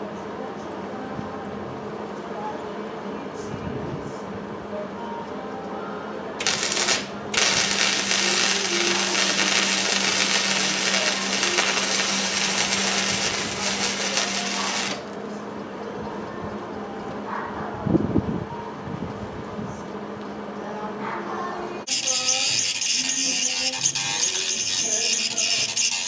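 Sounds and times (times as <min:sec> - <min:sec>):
welding arc crackling and hissing: 0:06.4 - 0:15.2, 0:21.9 - 0:26.0.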